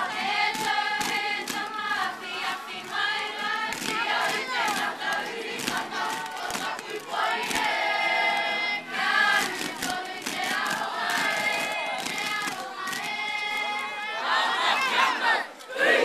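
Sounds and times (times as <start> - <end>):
girls singing in unison: 0.0 - 16.0
poi balls tapping: 0.5 - 7.8.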